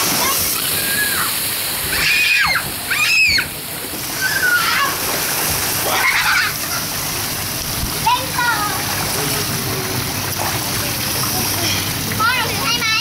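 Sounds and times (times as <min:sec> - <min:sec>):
water pouring and splashing: 0:00.0 - 0:13.0
children shouting and squealing: 0:00.1 - 0:05.1, 0:05.8 - 0:07.0.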